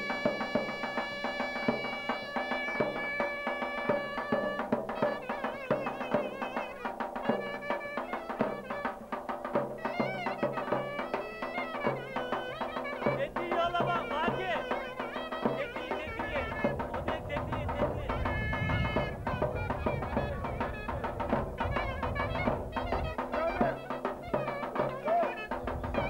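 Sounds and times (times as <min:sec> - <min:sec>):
drum beating steady rhythm: 0:00.0 - 0:26.0
shrill reed melody: 0:00.0 - 0:26.0.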